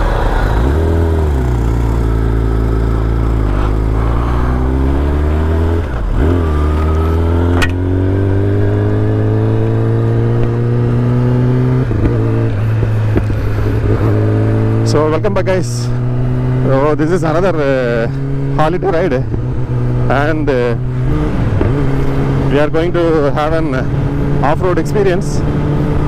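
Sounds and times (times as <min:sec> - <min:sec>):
motorcycle engine revving: 0:00.0 - 0:26.0
sharp click: 0:07.5 - 0:07.8.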